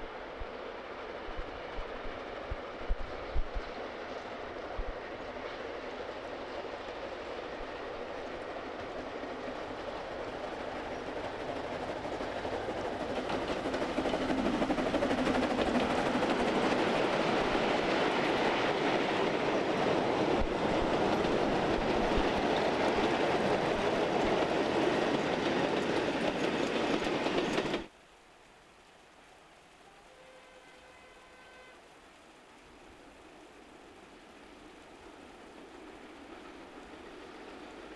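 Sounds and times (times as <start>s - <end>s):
wagons clattering over rails: 8.4s - 27.9s.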